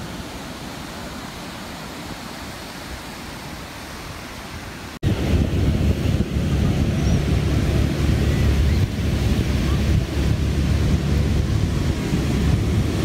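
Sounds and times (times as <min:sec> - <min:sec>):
ocean surf washing on beach: 0:00.0 - 0:13.0
wind buffeting microphone: 0:05.0 - 0:13.0.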